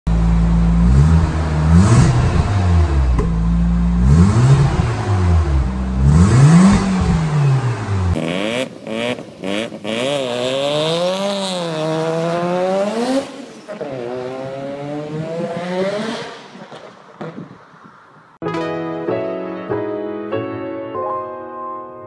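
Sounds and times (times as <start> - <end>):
rotary engine revving: 0.7 - 17.5.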